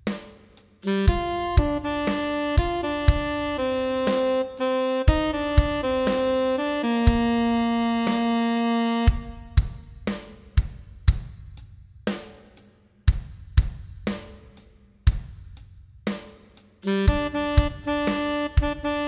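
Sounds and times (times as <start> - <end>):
drum kit backing track: 0.0 - 19.0
tenor saxophone long note: 0.8 - 9.8, 16.8 - 19.0.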